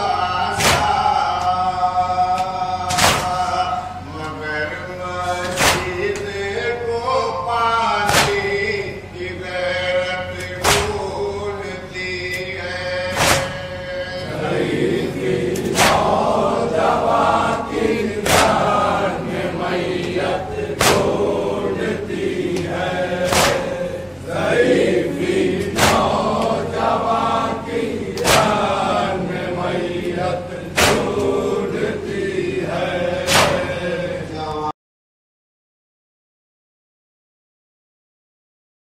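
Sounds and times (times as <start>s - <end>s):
men chanting: 0.0s - 34.7s
chest-beating slaps: 0.5s - 1.5s, 2.3s - 3.7s, 5.4s - 6.3s, 8.1s - 8.6s, 10.4s - 11.1s, 13.1s - 13.7s, 15.5s - 16.4s, 18.0s - 19.0s, 20.8s - 21.5s, 22.5s - 24.0s, 25.2s - 27.0s, 28.1s - 29.1s, 30.0s - 31.5s, 33.2s - 33.8s.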